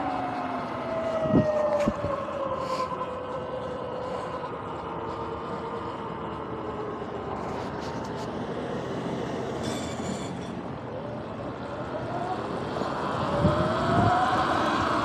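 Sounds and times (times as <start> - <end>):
tyre and wind noise: 0.0 - 6.5.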